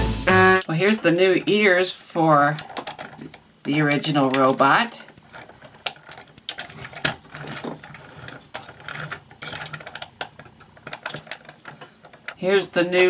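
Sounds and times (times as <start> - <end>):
hard plastic toy parts clicking: 2.5 - 13.0.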